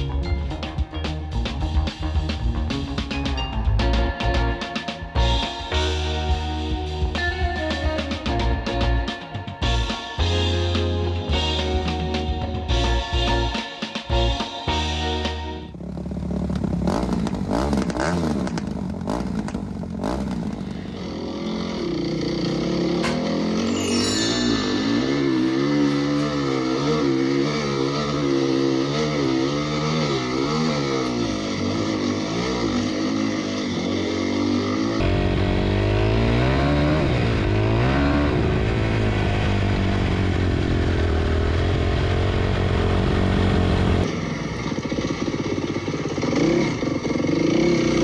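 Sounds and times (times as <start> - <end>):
motorcycle engine revving: 15.1 - 48.0.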